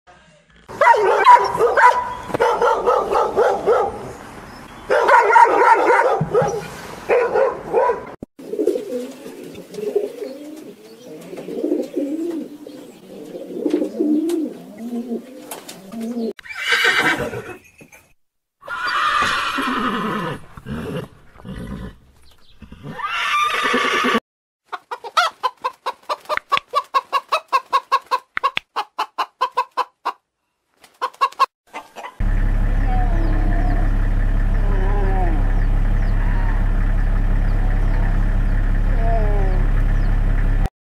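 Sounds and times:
dogs barking: 0.7s - 4.2s, 4.8s - 8.2s
chickens clucking: 8.4s - 16.3s, 24.7s - 30.2s, 30.8s - 32.3s
horses whinnying: 16.4s - 17.6s, 18.6s - 22.0s, 22.6s - 24.2s
low wavering animal call: 32.8s - 38.3s, 38.9s - 39.8s.

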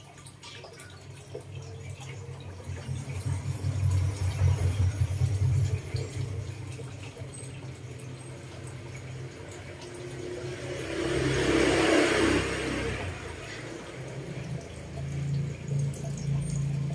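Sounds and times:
steady low hum: 1.2s - 11.1s.

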